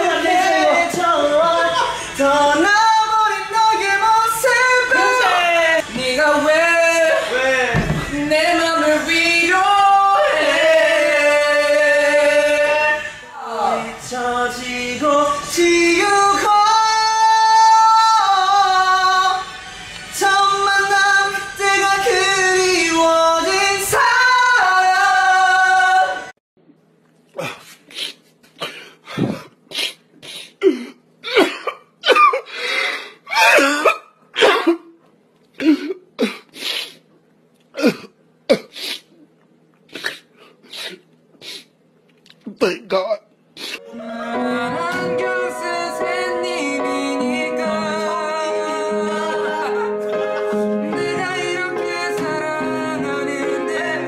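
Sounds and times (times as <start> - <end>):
men singing long held notes: 0.0 - 26.3, 43.8 - 54.0
man sobbing: 47.8 - 51.6.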